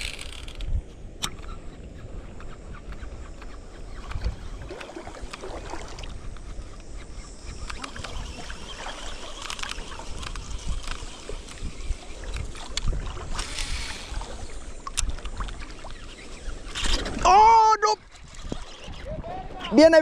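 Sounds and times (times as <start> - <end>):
small clicks: 0.0 - 1.8, 6.3 - 8.4, 9.1 - 17.0
wind rumble on microphone: 0.0 - 20.0
shallow water lapping and splashing: 2.7 - 20.0.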